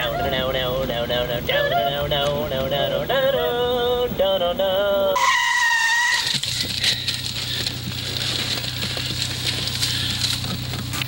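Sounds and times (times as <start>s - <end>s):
car engine humming: 0.0s - 11.0s
road noise: 0.0s - 11.0s
tires squealing: 5.1s - 11.0s.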